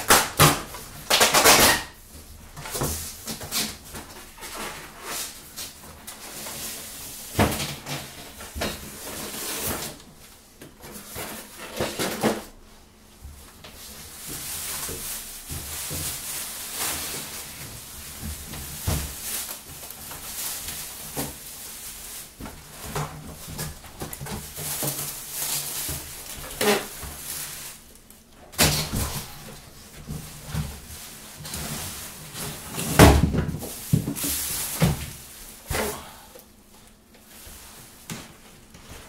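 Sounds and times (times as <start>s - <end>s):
plastic wrapping rustling: 0.0s - 39.0s
cardboard and foam thumps: 18.0s - 21.5s, 28.5s - 36.0s.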